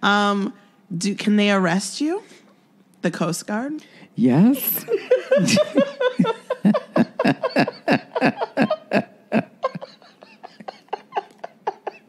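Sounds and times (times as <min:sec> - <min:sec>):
person laughing hard: 0:04.8 - 0:12.0.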